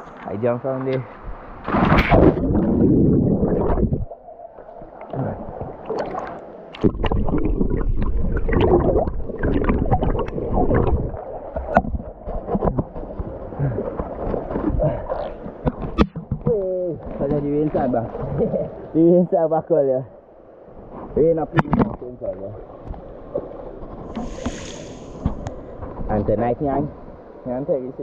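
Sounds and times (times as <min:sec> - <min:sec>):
muffled underwater sloshing: 0:00.0 - 0:28.0
underwater bubbles rushing: 0:01.2 - 0:19.0
underwater knocks: 0:06.8 - 0:18.5.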